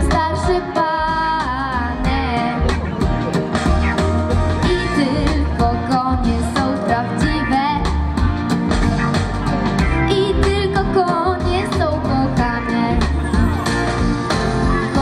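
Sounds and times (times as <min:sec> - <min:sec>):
guitar: 0:00.0 - 0:15.0
wavering lead melody: 0:01.3 - 0:06.4, 0:12.4 - 0:15.0
steady low beat: 0:01.8 - 0:05.8.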